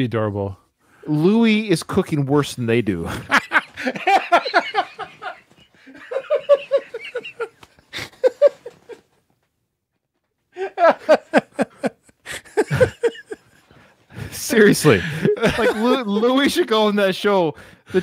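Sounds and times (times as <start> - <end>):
men laughing hard: 3.1 - 9.1, 10.6 - 16.6.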